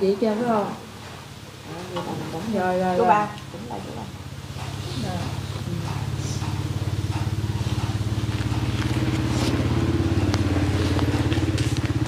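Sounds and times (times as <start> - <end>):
motorcycle engine running: 4.1 - 12.0.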